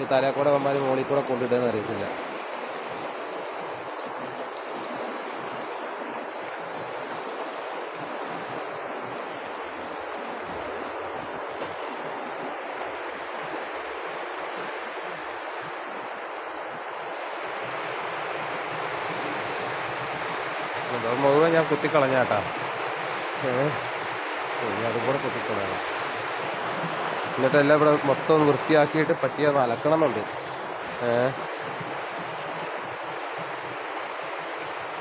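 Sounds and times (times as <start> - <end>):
stream water rushing: 0.0 - 35.0.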